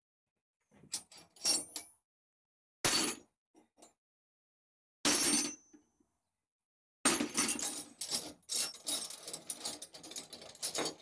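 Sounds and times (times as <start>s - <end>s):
metal spanners clinking: 7.1s - 11.0s.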